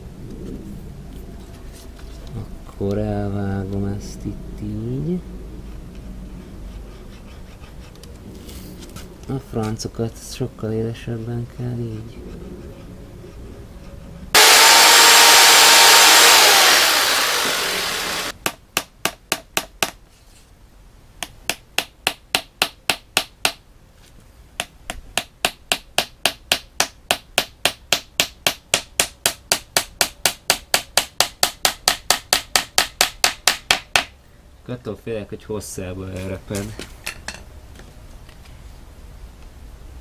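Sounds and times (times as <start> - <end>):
loud rushing noise: 14.4 - 18.4.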